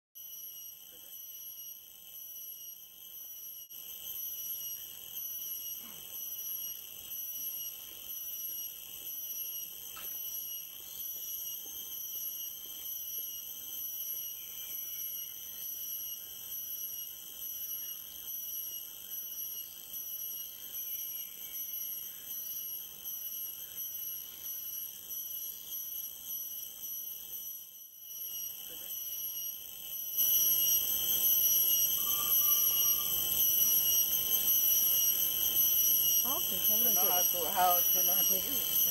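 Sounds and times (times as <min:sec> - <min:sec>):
shrill insect chorus: 0:00.2 - 0:38.9.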